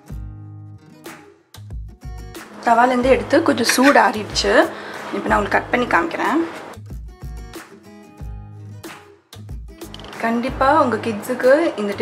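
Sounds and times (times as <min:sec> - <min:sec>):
plucked guitar-like music: 0:02.2 - 0:08.6.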